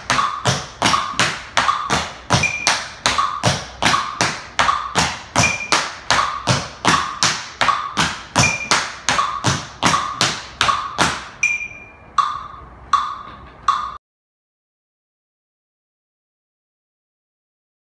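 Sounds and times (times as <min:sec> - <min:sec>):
tap shoes on wooden floor: 0:00.0 - 0:11.4.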